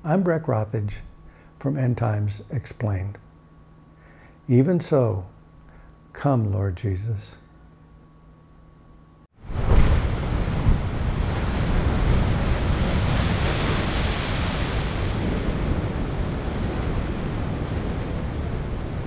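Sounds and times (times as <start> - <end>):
ocean waves breaking: 9.5 - 19.0.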